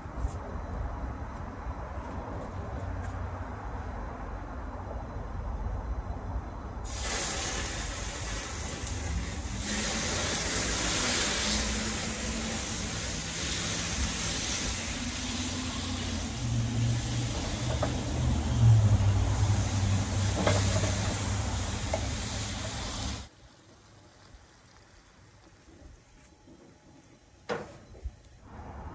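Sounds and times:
flames flaring up: 6.8s - 26.2s
meat sizzling in a pan: 6.9s - 18.1s.

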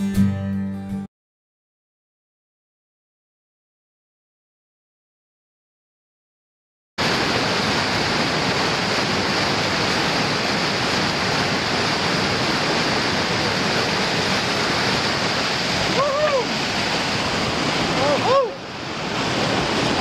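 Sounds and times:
water rushing over rocks: 7.0s - 20.0s.

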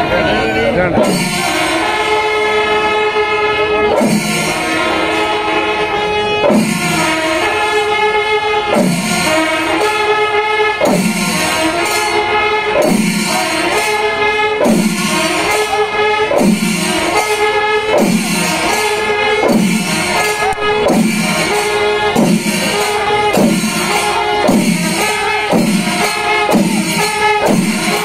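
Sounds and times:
sustained wind instrument tones: 0.0s - 28.0s
drums: 0.7s - 2.1s, 3.8s - 4.9s, 6.4s - 8.0s, 8.6s - 10.0s, 10.7s - 14.0s, 14.6s - 28.0s
hand cymbals: 1.0s - 28.0s.

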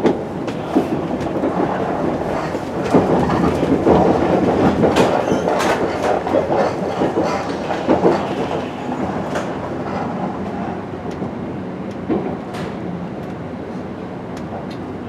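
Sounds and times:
wheels clattering over track: 0.0s - 10.7s
train wheels rumbling: 0.0s - 15.0s.

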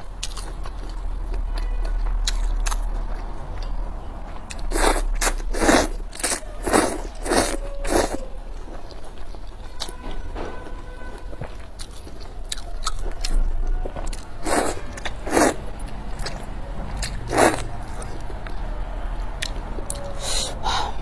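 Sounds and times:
wet chewing: 0.0s - 10.0s, 11.4s - 18.7s
person slurping noodles: 4.7s - 8.2s, 17.3s - 17.6s.

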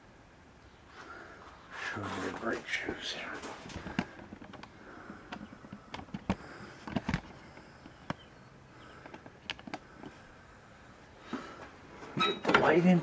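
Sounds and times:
handling clicks and knocks: 3.7s - 8.3s.

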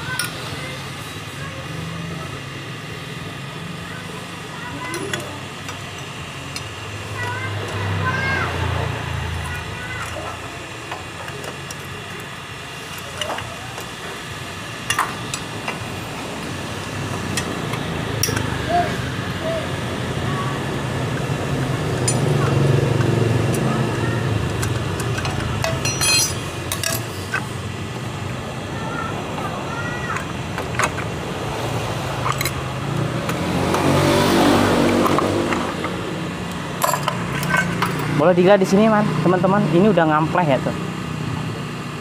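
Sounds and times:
workshop background noise: 0.0s - 42.0s
vehicle engine passing: 17.5s - 25.8s, 31.2s - 41.8s
metallic wrench clicks and knocks: 24.5s - 27.4s.

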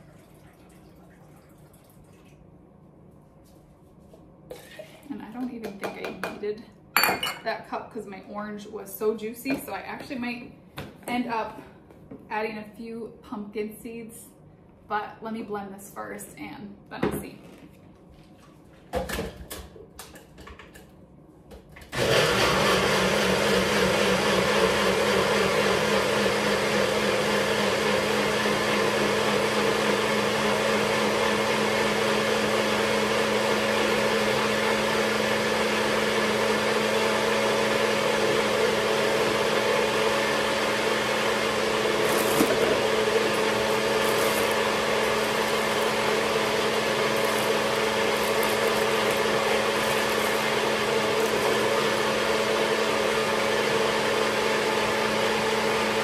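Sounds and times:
blender running: 21.8s - 56.0s.

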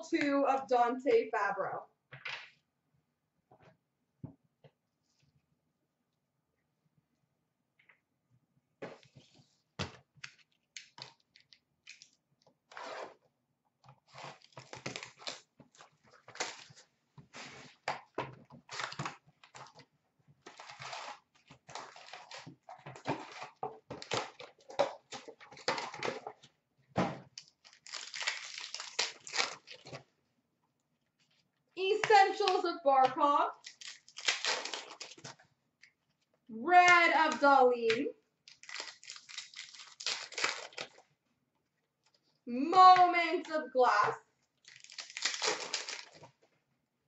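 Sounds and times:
card wrappers tearing and crinkling: 14.0s - 17.9s, 18.6s - 19.8s, 20.4s - 26.3s, 27.4s - 30.0s, 33.6s - 35.4s, 38.5s - 41.0s, 44.6s - 46.4s.

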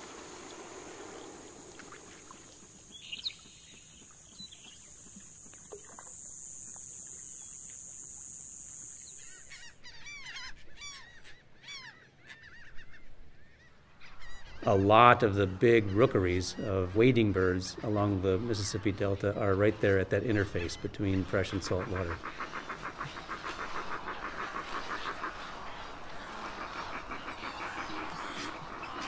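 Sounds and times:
ducks wings and water rushing: 0.0s - 9.7s, 15.9s - 29.0s
high insect chorus: 0.0s - 9.8s, 16.2s - 29.0s
water birds calling: 0.0s - 29.0s.

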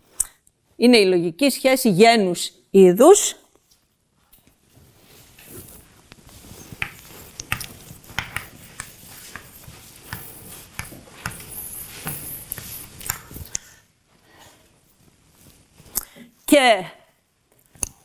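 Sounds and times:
rustling handling noise: 3.6s - 13.5s.

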